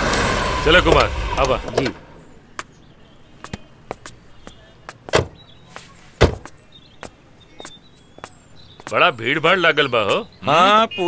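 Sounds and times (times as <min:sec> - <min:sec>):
footsteps on hard ground: 0:03.4 - 0:10.3.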